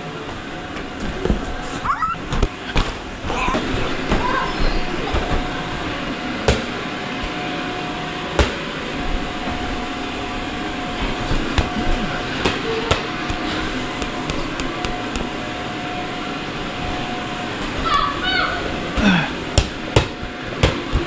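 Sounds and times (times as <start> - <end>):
electric blower humming: 2.2 - 17.9.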